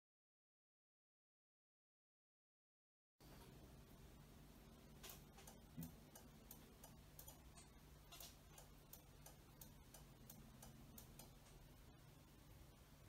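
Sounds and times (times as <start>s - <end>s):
low steady hum: 3.2s - 13.0s.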